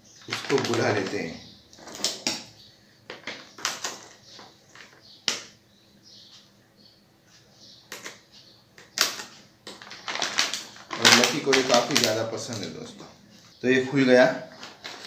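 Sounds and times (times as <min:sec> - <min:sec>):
plastic packet crinkling: 0:00.2 - 0:02.4, 0:09.0 - 0:13.0, 0:14.0 - 0:15.0.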